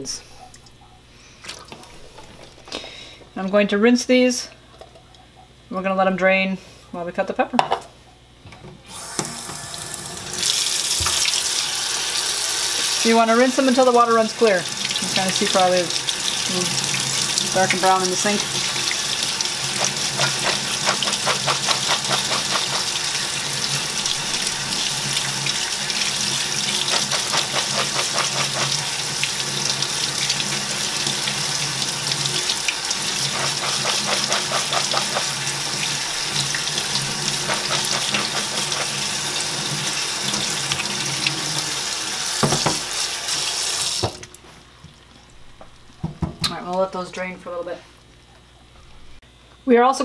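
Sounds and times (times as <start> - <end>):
faucet running into sink: 9.0 - 44.4
water splashing through colander: 10.3 - 44.4.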